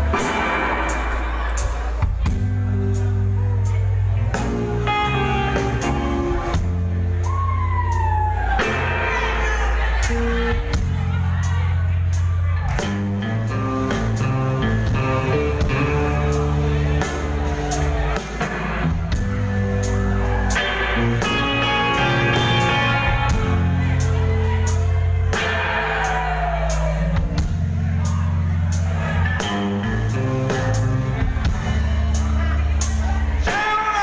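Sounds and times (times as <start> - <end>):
electric guitars: 0.0 - 11.2, 12.6 - 27.9
drums: 0.0 - 34.0
keyboard: 0.0 - 34.0.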